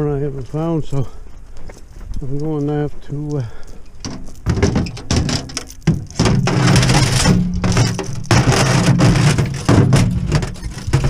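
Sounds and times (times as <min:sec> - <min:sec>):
footsteps crunching through dry grass: 0:00.0 - 0:04.7.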